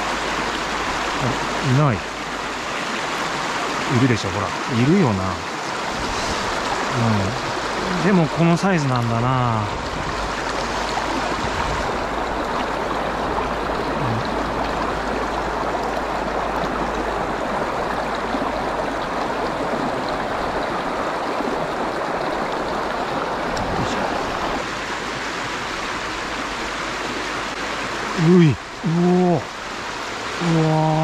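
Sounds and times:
stream rushing over rocks: 0.0s - 31.0s.

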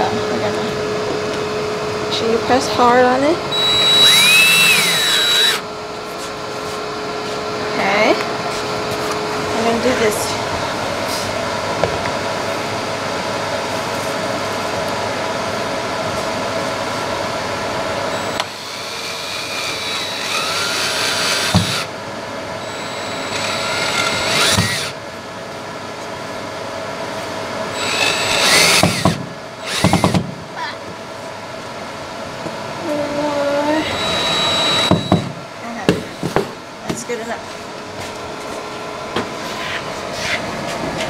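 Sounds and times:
cordless drill whining: 3.5s - 5.7s, 18.1s - 21.9s, 22.6s - 25.0s, 27.8s - 30.2s, 33.8s - 35.3s.

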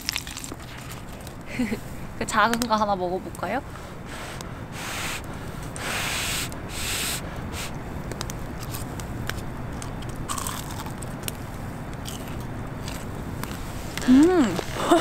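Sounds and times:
crunchy bites into fried chicken: 0.0s - 1.0s.

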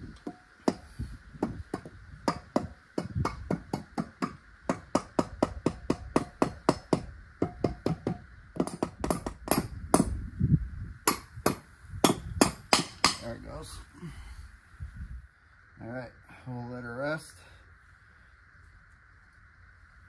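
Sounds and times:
rubber mallet tapping metal: 1.7s - 10.1s.

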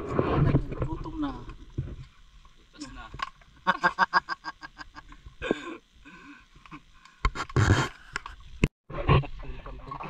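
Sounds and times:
person laughing: 3.6s - 5.1s.

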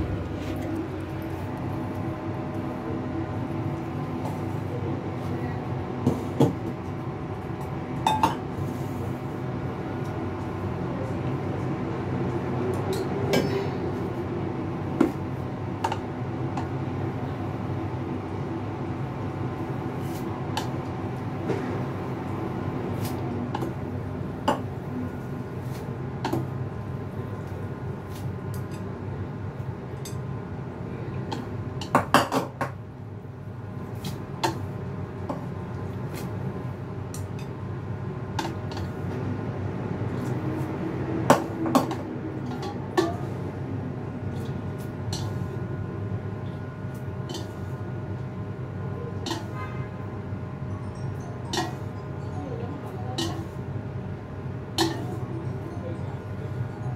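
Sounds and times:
low background hum: 0.0s - 56.9s
kitchen utensils clinking: 51.0s - 52.0s.

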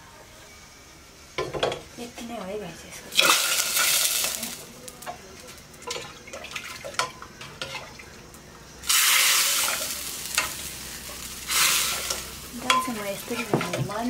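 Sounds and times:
hot pan hissing: 0.0s - 14.0s
metal ladle clinking on pans: 12.1s - 14.0s.

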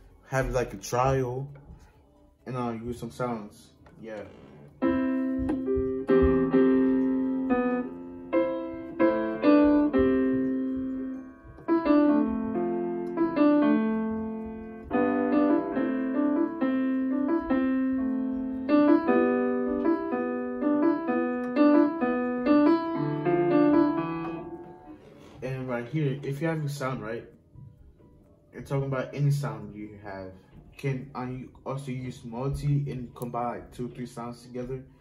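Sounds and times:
piano chords and melody: 2.7s - 30.0s.

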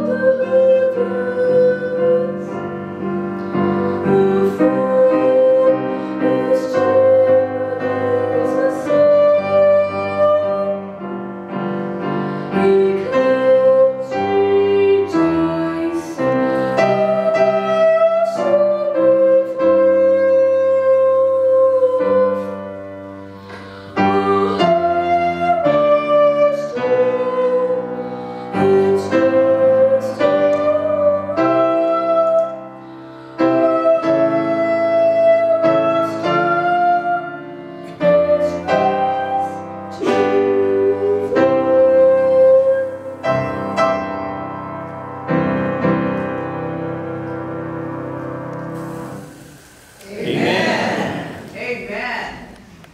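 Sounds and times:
boy singing into microphone: 0.0s - 2.6s, 3.4s - 11.0s, 12.5s - 22.8s, 23.4s - 43.2s
grand piano accompaniment: 0.0s - 52.9s.

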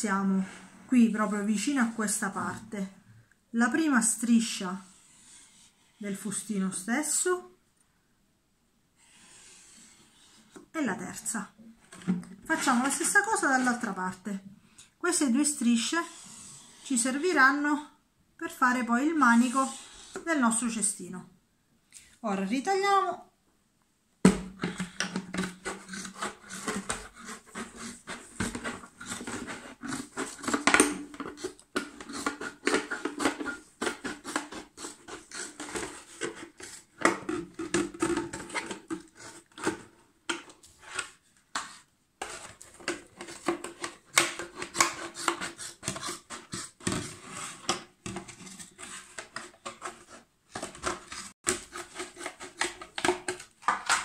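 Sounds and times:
scissors cutting plastic bottle: 24.8s - 39.7s, 42.2s - 47.0s, 50.6s - 54.0s.

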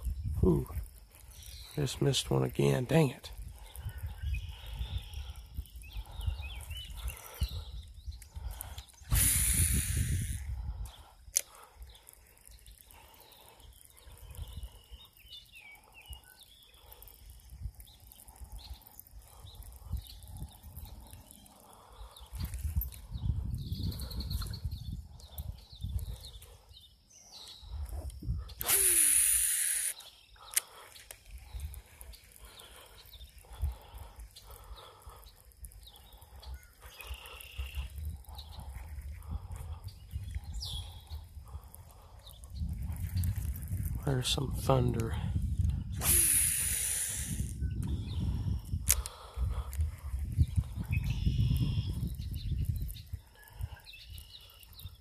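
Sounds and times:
faint chirps: 0.0s - 44.2s, 50.4s - 55.0s
fishing line hissing off reel: 8.4s - 11.8s, 27.9s - 35.1s, 45.9s - 47.7s
loud rushing hiss: 9.1s - 10.4s, 28.6s - 30.0s, 46.0s - 47.6s.

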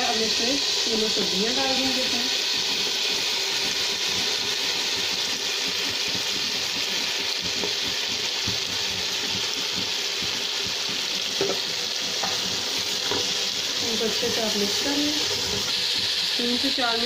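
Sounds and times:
vegetables sizzling in hot oil: 0.0s - 17.0s
spatula knocking against pan: 5.8s - 13.3s.

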